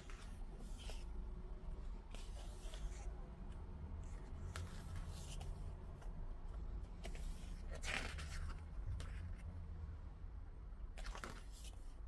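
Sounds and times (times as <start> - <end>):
glossy paper pages rustling: 0.0 - 1.2, 2.0 - 3.2, 4.0 - 6.1, 6.9 - 9.5, 11.0 - 12.0.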